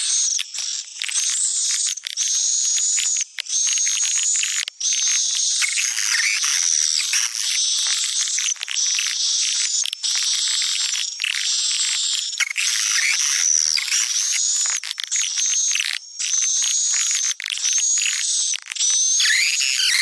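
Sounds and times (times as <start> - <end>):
swiftlets twittering and chirping: 4.2 - 20.0.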